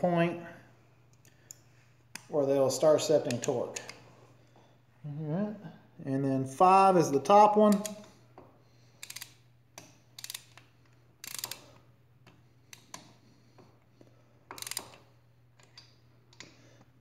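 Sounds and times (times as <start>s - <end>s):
ratchet wrench clicking: 9.0s - 11.7s, 14.5s - 15.8s.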